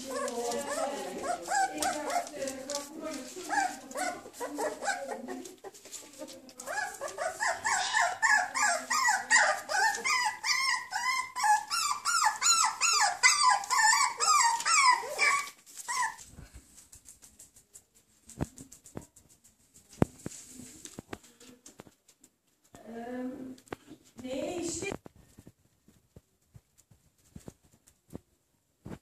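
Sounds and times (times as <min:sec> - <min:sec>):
puppies whining and yelping: 0:00.0 - 0:02.4, 0:03.4 - 0:05.8, 0:06.6 - 0:16.3.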